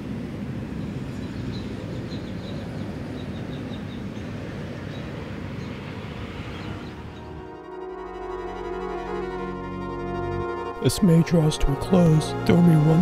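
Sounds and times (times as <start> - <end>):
distant traffic rumble: 0.0 - 13.0
bird chirping: 1.1 - 5.8.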